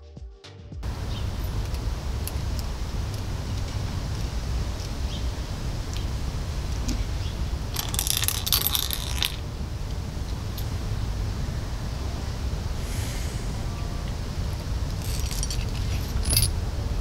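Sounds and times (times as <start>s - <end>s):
low background rumble: 0.8s - 17.0s
dense metal clinking and jingling: 6.9s - 9.5s, 14.9s - 16.6s.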